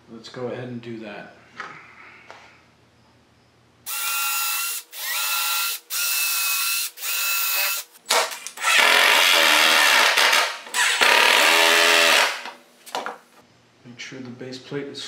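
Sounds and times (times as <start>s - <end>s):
cordless drill whining: 3.9s - 7.9s, 8.5s - 12.5s.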